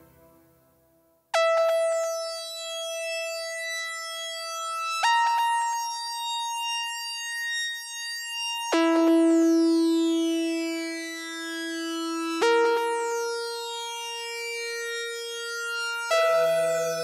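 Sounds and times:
sustained synthesizer chords: 14.8 - 17.0.

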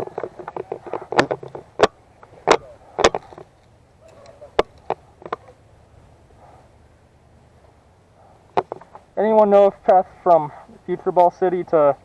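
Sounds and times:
camera rattling on mount: 0.0 - 5.6, 8.5 - 9.0.

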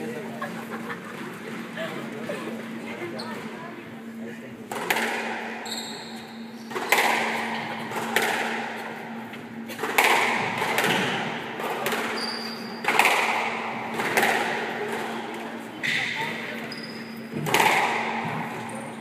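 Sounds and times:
ball hitting court walls: 4.7 - 5.4, 6.7 - 8.7, 9.8 - 15.0, 17.3 - 18.5
squash racket striking ball: 4.7 - 5.6, 6.7 - 8.9, 9.8 - 15.1, 17.4 - 18.5.

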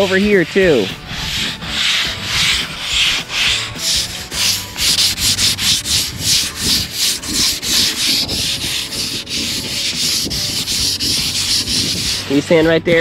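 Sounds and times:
sandpaper scratching on wood: 0.0 - 13.0.

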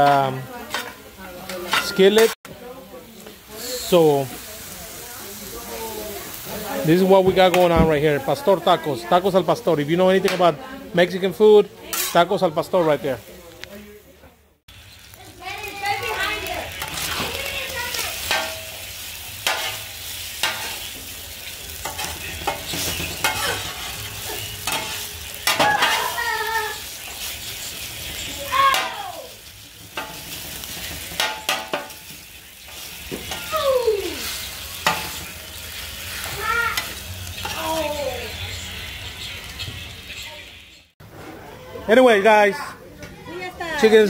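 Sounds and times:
metal spatula scraping griddle: 0.0 - 2.4, 11.8 - 13.1, 15.9 - 29.0, 29.8 - 33.6, 34.2 - 39.6
meat sizzling on griddle: 0.0 - 41.0, 43.2 - 44.0.

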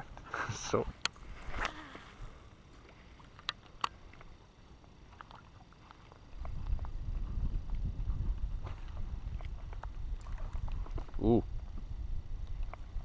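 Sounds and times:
small ticks: 2.8 - 7.0
wind rumble on microphone: 6.2 - 13.0.

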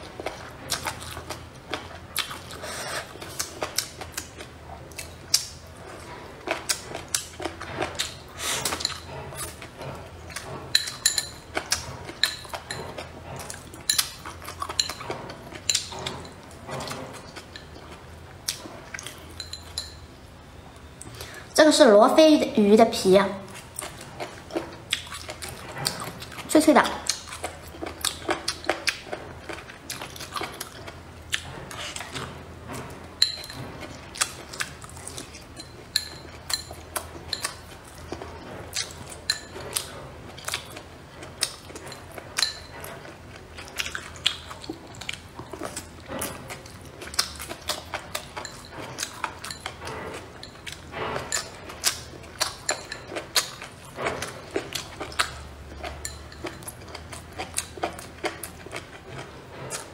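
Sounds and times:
person chewing crunchy fish skin: 0.0 - 19.4, 23.5 - 26.5, 27.1 - 32.8, 33.4 - 59.9.

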